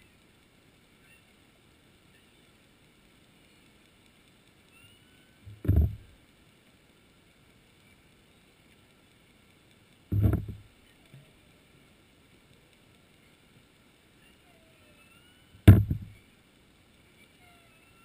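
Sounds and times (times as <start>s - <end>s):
faint steady hiss: 0.0s - 18.0s
dull low underwater thuds: 5.5s - 6.2s, 10.1s - 10.7s, 15.6s - 16.2s.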